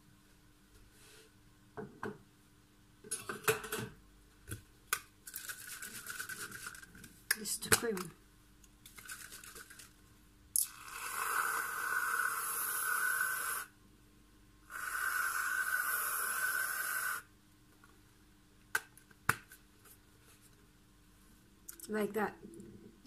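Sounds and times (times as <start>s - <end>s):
aerosol can hissing: 10.6s - 13.7s, 14.7s - 17.3s.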